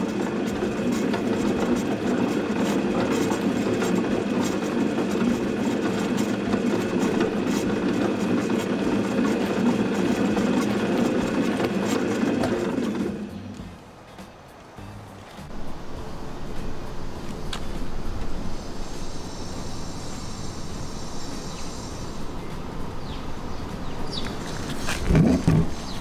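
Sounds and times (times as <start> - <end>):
mixer running: 0.0 - 13.8.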